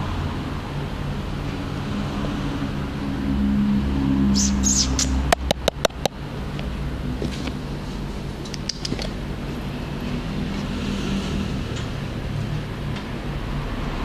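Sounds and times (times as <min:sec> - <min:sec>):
steady low hum: 0:00.0 - 0:14.0
sharp clicks and knocks: 0:05.2 - 0:06.2, 0:08.4 - 0:09.2.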